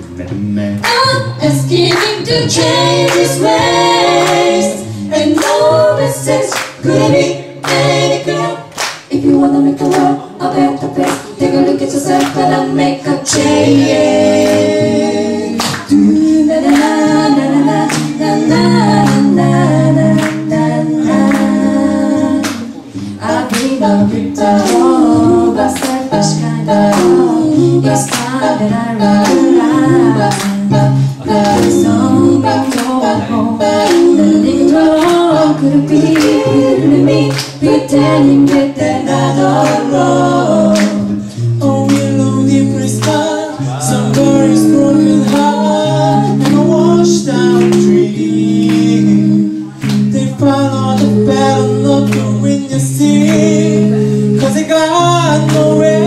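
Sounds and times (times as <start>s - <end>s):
low bass voice: 0.0s - 0.8s
percussive beat: 0.2s - 56.0s
group singing in close harmony: 0.8s - 56.0s.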